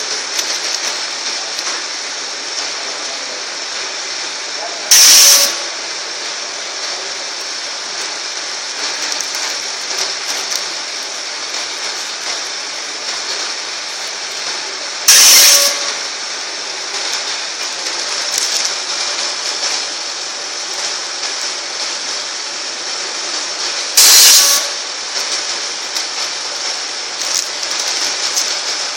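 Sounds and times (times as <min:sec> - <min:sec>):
band sealer mechanical hiss: 0:00.0 - 0:28.9
loud hissing bursts: 0:00.0 - 0:28.9.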